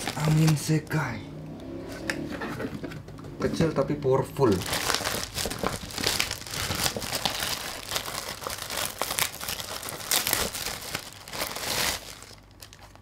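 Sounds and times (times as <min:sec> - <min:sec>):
plastic bag crinkling: 0:00.0 - 0:00.8, 0:04.4 - 0:13.0.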